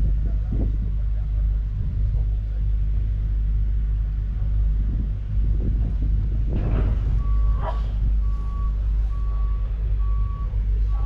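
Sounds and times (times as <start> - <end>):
steady low rumble: 0.0 - 11.0
vehicle reversing alarm beeping: 7.1 - 11.0.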